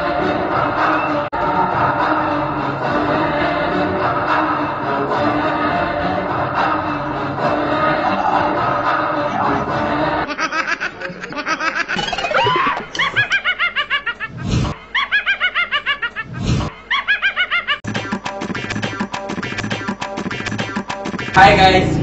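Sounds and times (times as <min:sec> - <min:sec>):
high-pitched laughter: 0:10.2 - 0:17.9
percussive music: 0:17.8 - 0:22.0.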